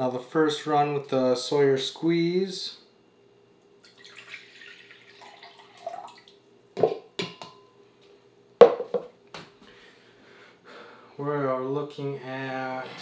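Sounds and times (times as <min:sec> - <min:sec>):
water pouring from cup: 0:03.8 - 0:06.4
plastic cups knocking on wooden table: 0:08.6 - 0:09.1.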